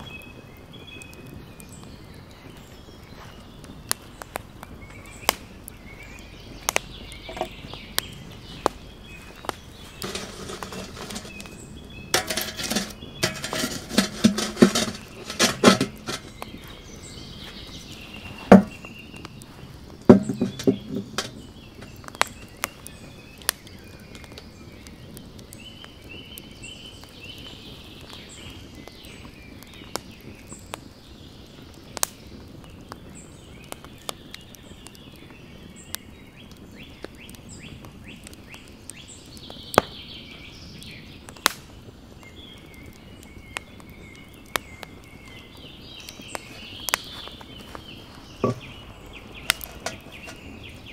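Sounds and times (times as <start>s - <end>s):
wood fire crackling and popping: 0.0s - 50.9s
knocks and scrapes: 7.3s - 7.5s, 9.3s - 16.8s, 17.5s - 22.0s, 48.4s - 48.9s, 49.5s - 50.9s
concrete blocks set down heavily: 10.0s - 16.4s, 18.5s - 18.8s, 20.1s - 21.4s, 48.4s - 48.8s.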